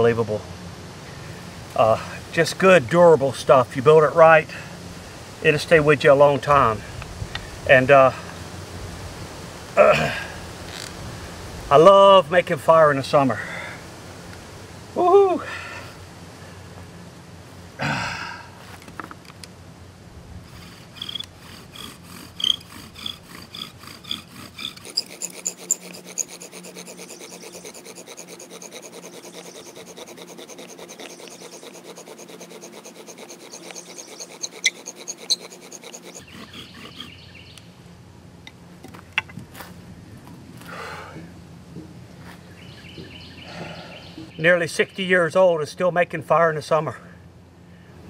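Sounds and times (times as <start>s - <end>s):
bow drill rasping and squeaking: 20.5s - 37.3s.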